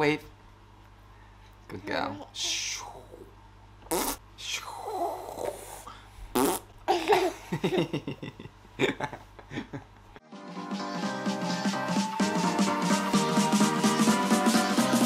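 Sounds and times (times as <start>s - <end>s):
person laughing: 6.9s - 10.1s.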